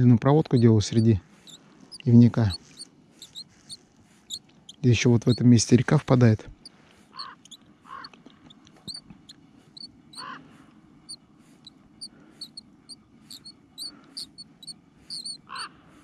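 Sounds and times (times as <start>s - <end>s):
low reel squawks: 0.4s - 3.8s, 15.1s - 15.7s
fishing reel handle squeaking: 15.1s - 15.4s.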